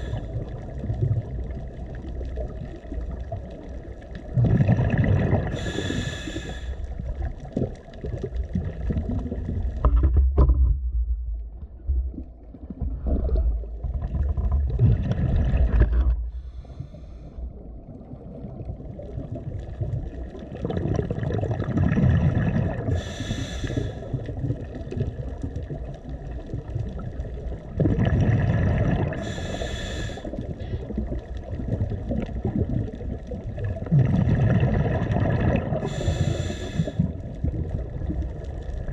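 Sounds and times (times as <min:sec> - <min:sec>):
rumble of exhaled bubbles: 0:00.0 - 0:38.9
hissing regulator inhalations: 0:05.5 - 0:06.9, 0:16.3 - 0:17.4, 0:22.9 - 0:24.1, 0:29.1 - 0:30.4, 0:35.8 - 0:37.2.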